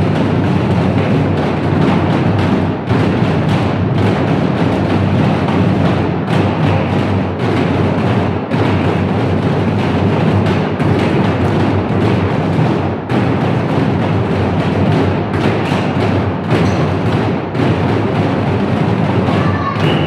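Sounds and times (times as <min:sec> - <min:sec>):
dense drumming: 0:00.0 - 0:20.0.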